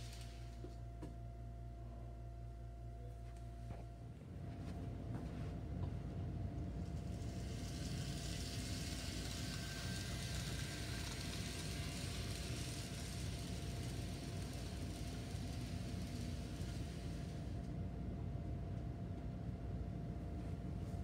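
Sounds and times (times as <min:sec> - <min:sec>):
model train rolling hiss: 0:00.0 - 0:00.6, 0:06.8 - 0:17.6
steady low hum: 0:00.0 - 0:21.0.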